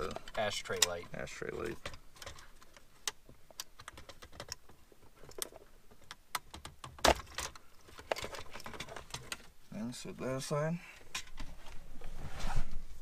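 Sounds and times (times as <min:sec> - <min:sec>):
plastic clicks and rattles: 0:00.0 - 0:09.5.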